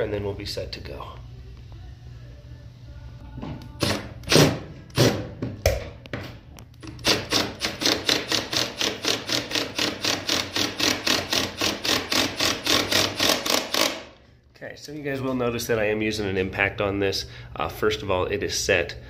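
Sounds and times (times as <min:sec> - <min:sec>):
impact driver hammering: 0:06.8 - 0:14.1.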